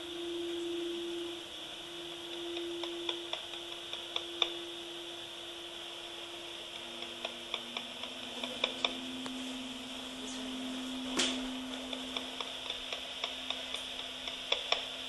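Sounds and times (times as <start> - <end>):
baby monitor speaker hissing: 0.0 - 15.0
low steady hum: 0.0 - 15.0
irregular clicks and ticks: 2.1 - 4.6, 6.7 - 9.4, 11.3 - 15.0.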